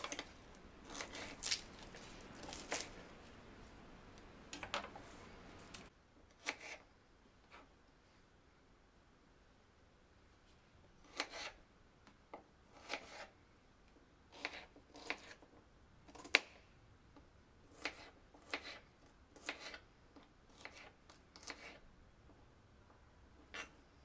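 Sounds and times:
knife chopping on plastic board: 17.7 - 18.8, 19.4 - 19.8, 20.5 - 21.8.

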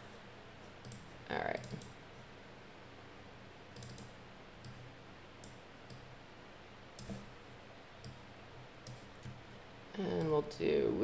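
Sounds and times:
computer mouse clicks: 0.8 - 2.0, 3.7 - 4.8, 5.4 - 6.1, 7.0 - 7.3, 8.8 - 9.4.

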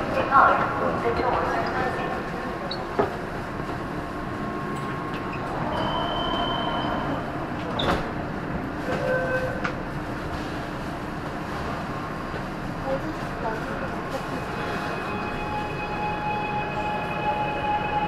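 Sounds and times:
subway train rumbling: 0.0 - 18.0.

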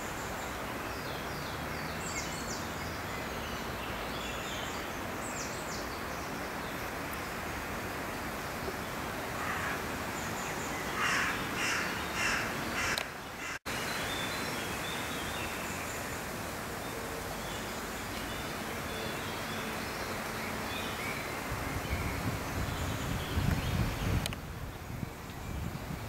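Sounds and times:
steady outdoor hiss: 0.0 - 26.0
crow cawing: 9.4 - 9.8, 11.0 - 13.6
wind rumble on microphone: 21.2 - 26.0.

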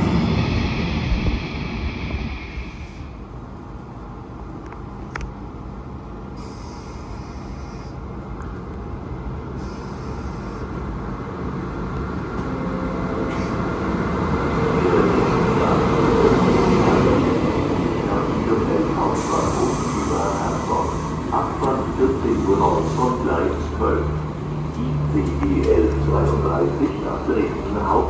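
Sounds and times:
brief hisses: 6.4 - 8.0
electric locomotive running: 11.8 - 28.0.

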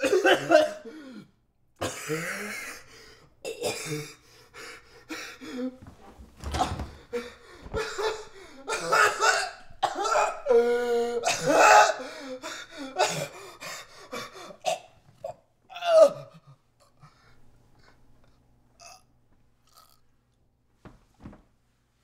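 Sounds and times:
man coughing and choking: 0.0 - 0.9, 1.8 - 4.2, 7.8 - 12.0, 12.9 - 13.4, 14.5 - 16.3
body thudding on floor: 5.8 - 8.2.

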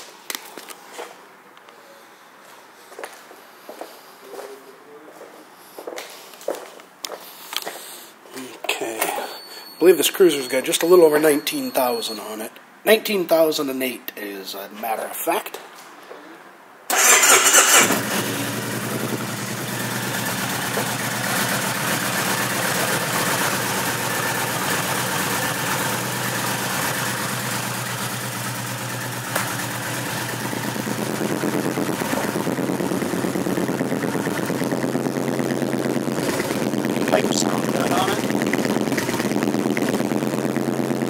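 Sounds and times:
motorcycle engine idling: 17.0 - 41.0.

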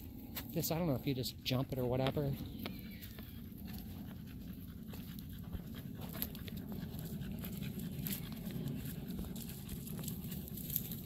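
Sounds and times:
dog panting: 1.7 - 11.0
footsteps on dry leaves: 2.2 - 11.0.

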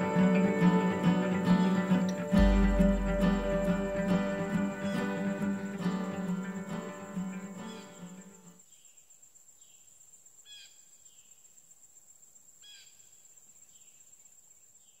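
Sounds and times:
acoustic guitar music: 0.0 - 8.6
high insect drone: 0.0 - 15.0.

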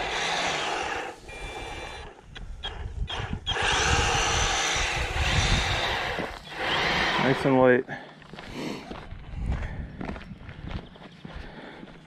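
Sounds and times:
power brush sweeping grass: 0.0 - 2.1, 3.6 - 7.6.

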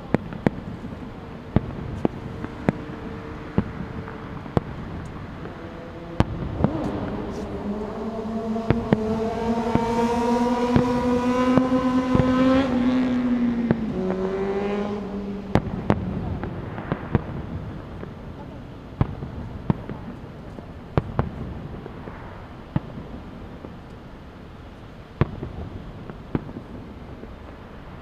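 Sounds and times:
passing vehicle engine hum: 0.0 - 18.8
distant fireworks bangs: 0.0 - 24.1, 25.0 - 28.0.

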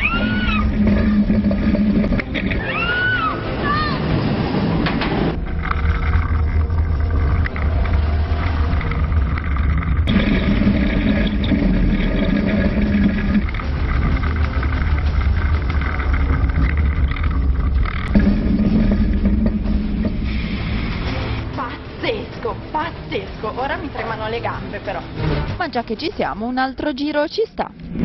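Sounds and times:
roller coaster rumble: 0.0 - 21.7.

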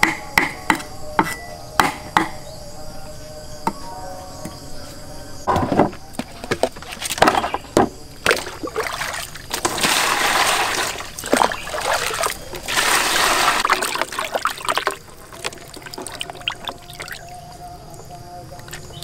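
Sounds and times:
hands sloshing water: 8.2 - 17.4
water pouring into basin: 8.3 - 17.5.

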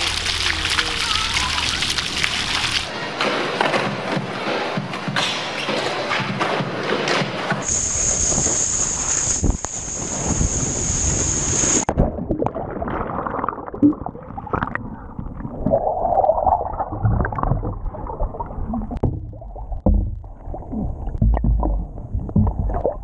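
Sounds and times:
water skis spray hissing: 0.0 - 2.9, 7.6 - 11.9
underwater gurgling and bubbling: 7.6 - 23.0
underwater knocks: 18.8 - 23.0.

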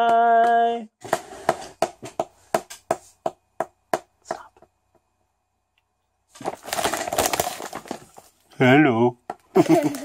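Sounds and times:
plastic bag crinkling: 6.3 - 8.5, 9.6 - 10.0.

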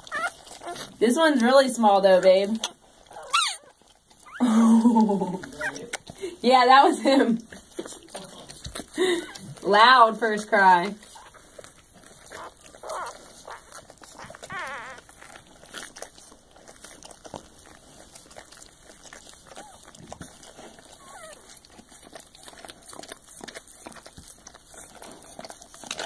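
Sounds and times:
puppy squeaks: 0.0 - 0.9, 2.6 - 4.5, 5.4 - 6.0, 11.0 - 15.9, 19.2 - 21.6
puppy crying: 0.0 - 1.0, 3.0 - 6.0, 11.0 - 15.9, 19.2 - 20.0, 20.7 - 21.6
dog licking: 0.0 - 26.0.

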